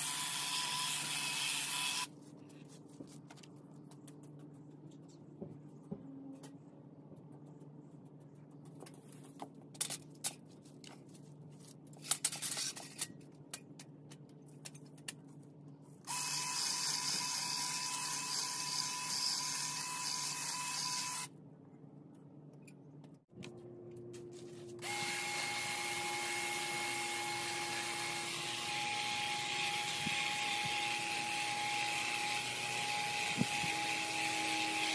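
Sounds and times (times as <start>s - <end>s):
electric hedge trimmer whining: 24.8s - 34.9s.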